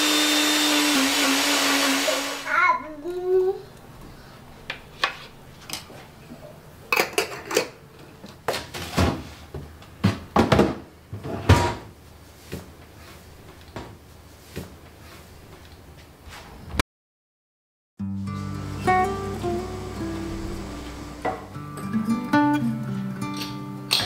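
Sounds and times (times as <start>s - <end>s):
refrigerator door and drawers: 10.1s - 11.9s.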